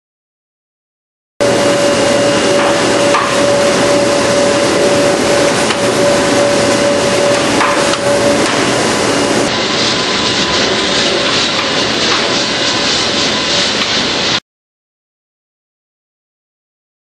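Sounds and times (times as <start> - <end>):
constant humming tone: 1.4 - 14.2
printing machinery clattering: 1.4 - 14.4.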